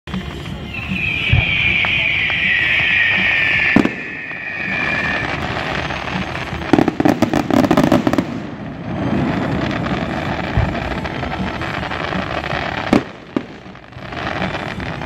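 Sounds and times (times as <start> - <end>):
rapid firework crackling: 0.1 - 15.0
firework whistle sliding down: 0.4 - 7.7
firework bang: 0.7 - 11.9.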